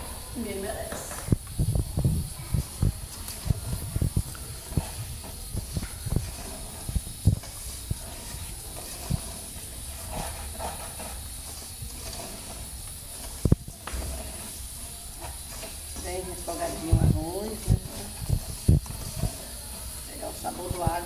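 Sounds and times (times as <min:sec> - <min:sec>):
rice sizzling in hot fat: 0:00.0 - 0:21.0
low knocks and thumps: 0:00.8 - 0:08.0.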